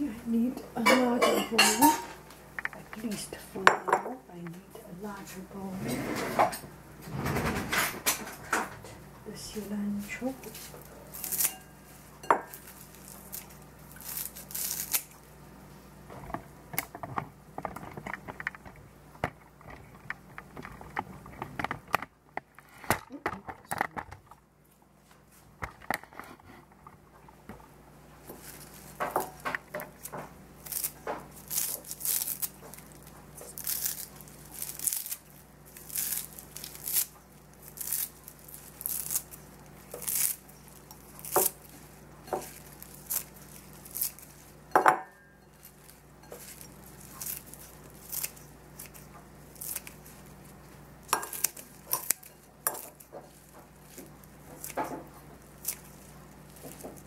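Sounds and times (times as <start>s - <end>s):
scissors snipping herbs: 9.6s - 11.7s, 12.4s - 15.2s, 28.3s - 44.5s, 45.6s - 57.0s.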